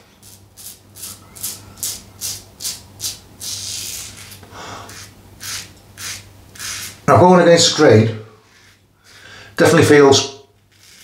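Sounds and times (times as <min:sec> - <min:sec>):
razor scraping stubble: 0:00.2 - 0:07.1, 0:10.6 - 0:11.0.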